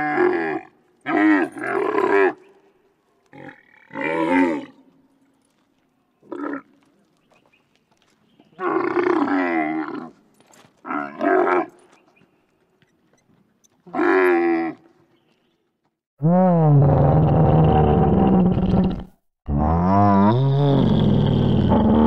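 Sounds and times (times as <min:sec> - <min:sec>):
camel calling: 0:12.9 - 0:15.0.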